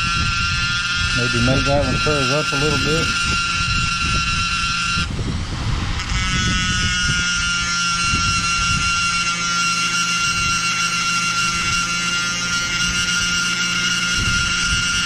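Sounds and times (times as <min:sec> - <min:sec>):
rotary tool grinding bone: 0:00.0 - 0:05.2, 0:05.8 - 0:15.0.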